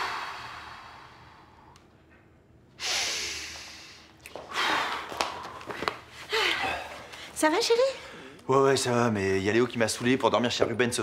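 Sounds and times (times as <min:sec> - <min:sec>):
man breathing deeply: 0:00.0 - 0:01.8, 0:02.8 - 0:05.1.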